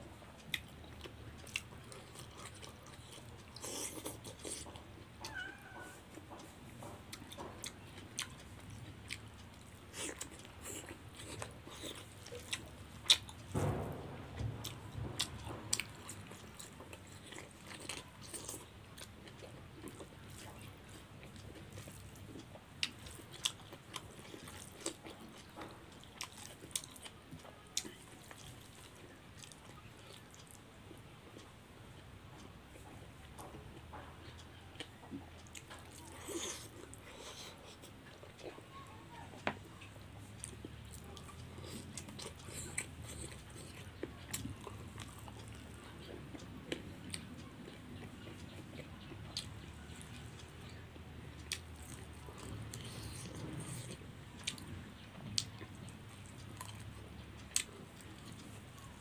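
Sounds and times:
person chewing and lip-smacking: 0:00.4 - 0:05.4, 0:06.0 - 0:13.6, 0:14.6 - 0:30.6, 0:32.4 - 0:59.0
loud knock: 0:13.6 - 0:15.9.

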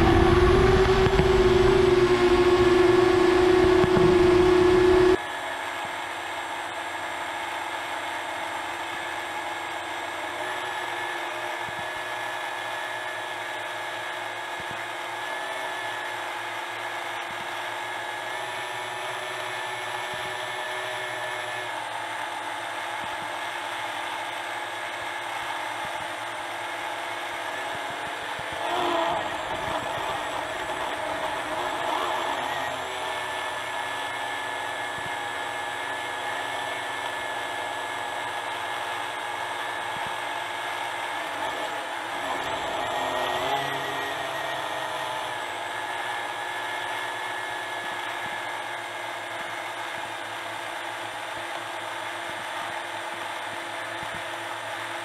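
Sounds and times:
quadcopter motors whining: 0:00.0 - 0:55.0.

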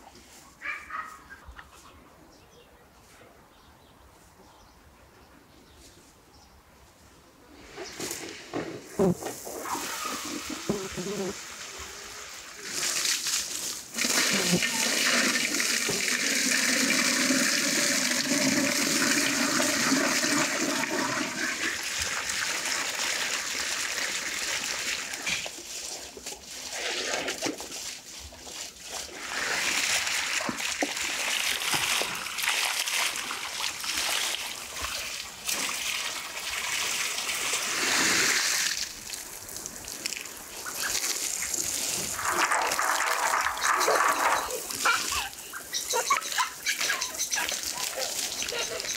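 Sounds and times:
spray spattering on grass: 0:07.8 - 0:20.8, 0:37.2 - 0:48.9
water splashing into metal pot: 0:40.9 - 0:45.2.

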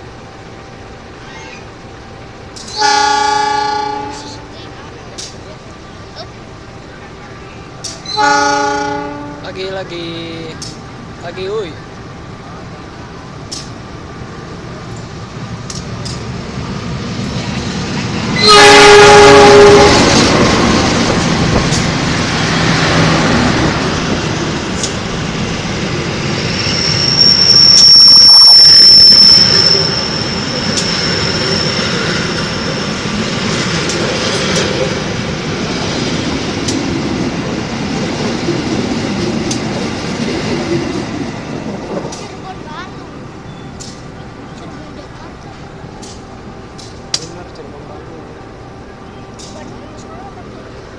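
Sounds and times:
train rumbling and wheel clatter: 0:00.0 - 0:50.9
locomotive horn blast: 0:02.7 - 0:04.5, 0:08.1 - 0:09.5, 0:18.4 - 0:20.5
high wheel squeal: 0:26.3 - 0:33.0.

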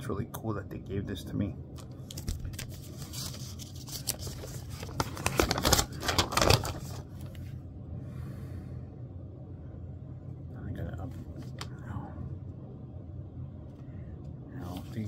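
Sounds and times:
paper rustling and crackling: 0:01.8 - 0:07.4.

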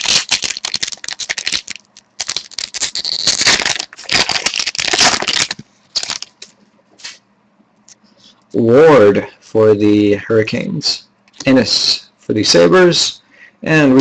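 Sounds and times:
foil wrapper crinkling: 0:00.0 - 0:06.5.

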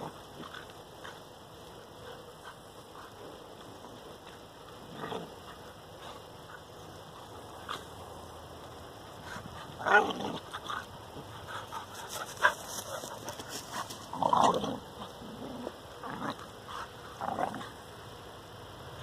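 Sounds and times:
dogs play-fighting vocalizing: 0:01.9 - 0:08.0, 0:09.2 - 0:17.8.

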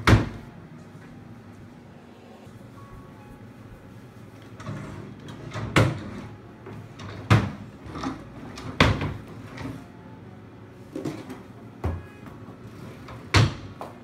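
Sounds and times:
drawers sliding scrapes: 0:04.4 - 0:09.8.

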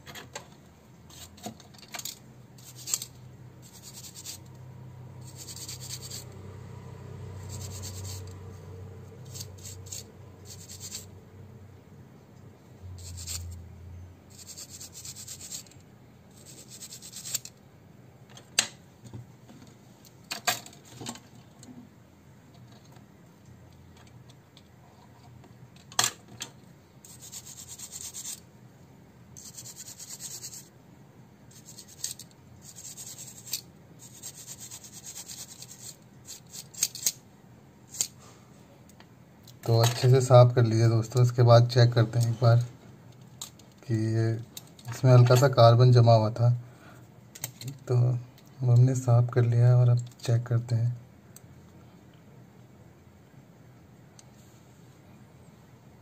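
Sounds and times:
toothbrush scrubbing circuit board: 0:02.6 - 0:04.5, 0:05.2 - 0:06.3, 0:07.4 - 0:08.4, 0:09.2 - 0:11.1, 0:13.0 - 0:13.6, 0:14.3 - 0:15.7, 0:16.4 - 0:17.5, 0:27.1 - 0:28.4, 0:29.4 - 0:30.7, 0:31.5 - 0:37.1.

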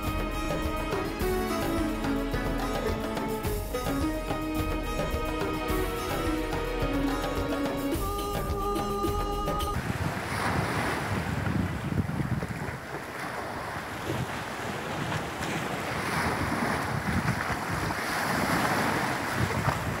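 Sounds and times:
background music: 0:00.0 - 0:09.8
sea waves splashing on rocks: 0:09.8 - 0:20.0
wind buffeting microphone: 0:09.8 - 0:20.0.

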